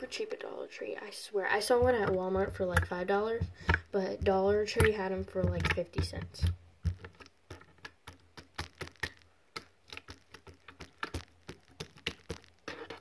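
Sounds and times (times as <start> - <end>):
slime squished by hand: 7.5 - 13.0.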